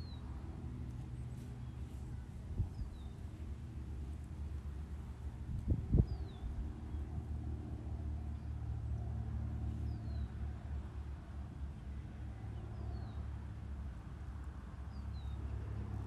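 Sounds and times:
wind on microphone: 0:02.4 - 0:03.2, 0:05.4 - 0:06.8.

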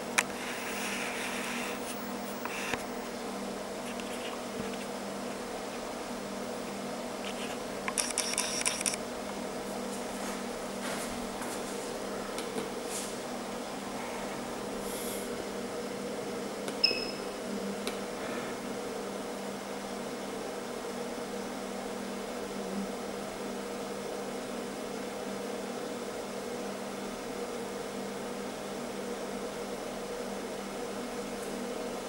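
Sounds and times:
machine humming: 0:00.0 - 0:22.8
short beep: 0:16.8 - 0:17.3.

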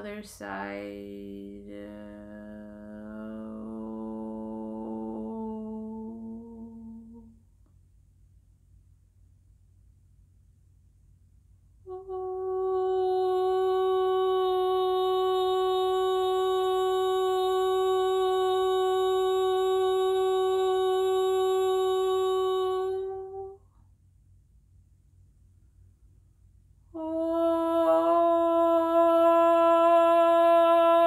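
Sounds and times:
woman singing a held note: 0:00.0 - 0:07.4, 0:11.9 - 0:23.7, 0:26.9 - 0:31.0.

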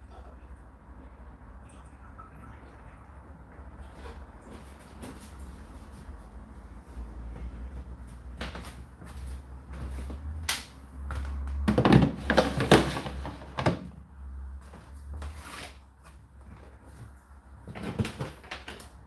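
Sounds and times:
plastic container scraping and knocking: 0:11.6 - 0:13.9.

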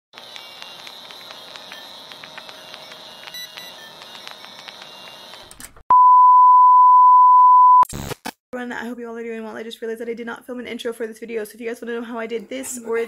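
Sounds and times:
old film crackle and pops: 0:00.2 - 0:05.6
test-tone beep: 0:05.9 - 0:07.8.

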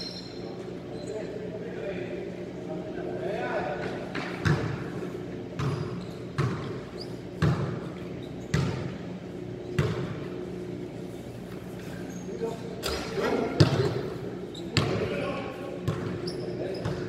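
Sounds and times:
steady low hum: 0:00.0 - 0:17.0
basketballs bouncing on hard floor: 0:04.1 - 0:04.8, 0:05.5 - 0:09.0, 0:09.7 - 0:10.3, 0:12.8 - 0:14.1, 0:14.7 - 0:15.2, 0:15.8 - 0:17.0.

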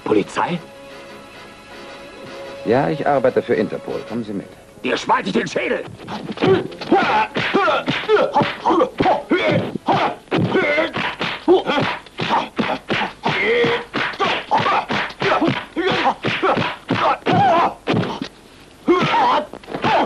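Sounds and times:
fighters yelling and grunting: 0:05.0 - 0:18.2, 0:18.9 - 0:20.0
punch and slap impacts: 0:06.1 - 0:18.3.

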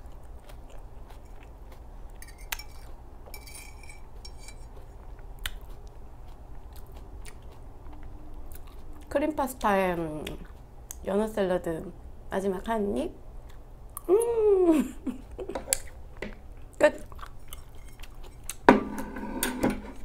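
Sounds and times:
chewing with mouth closed: 0:00.0 - 0:09.1, 0:15.7 - 0:18.7
fork scraping on ceramic plate: 0:02.2 - 0:04.8.

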